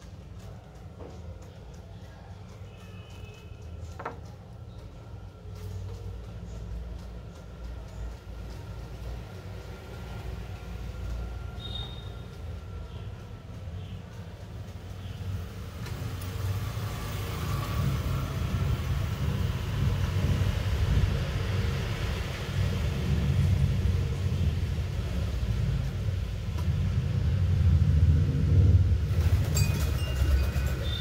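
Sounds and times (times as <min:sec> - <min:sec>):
low steady rumble: 0:17.8 - 0:30.5.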